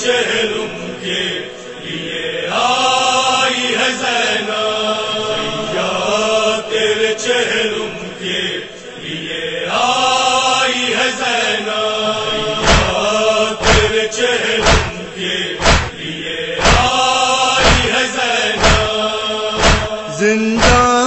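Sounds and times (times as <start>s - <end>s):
men chanting in unison: 0.0s - 21.0s
heavy rhythmic thuds: 12.5s - 21.0s.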